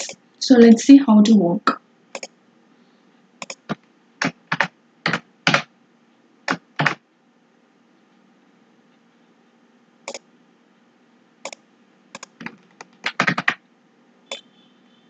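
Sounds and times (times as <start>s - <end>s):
keyboard keystrokes: 3.4s - 5.7s, 6.5s - 7.0s, 12.2s - 13.6s.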